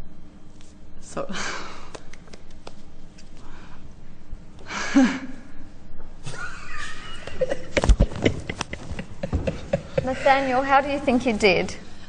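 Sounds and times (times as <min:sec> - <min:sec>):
people laughing: 0:06.2 - 0:10.9.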